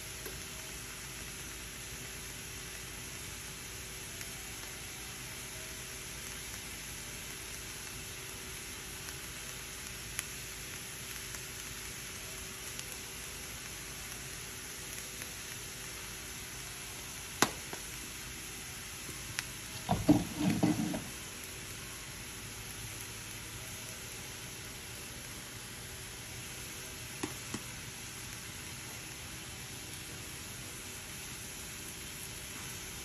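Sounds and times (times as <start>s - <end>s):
meat sizzling in a frying pan: 0.0s - 33.0s
knocks: 19.9s - 21.1s.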